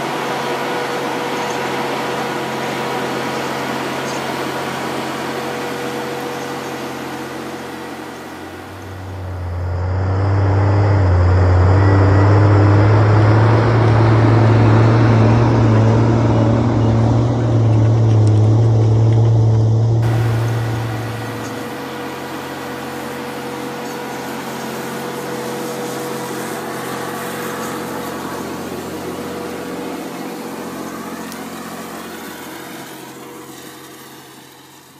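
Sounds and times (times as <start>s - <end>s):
diesel engine under load: 0.0s - 34.9s.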